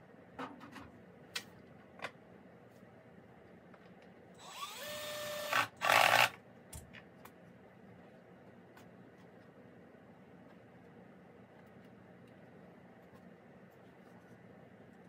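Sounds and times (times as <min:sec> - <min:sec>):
power drill whining into wood: 0:04.4 - 0:06.3.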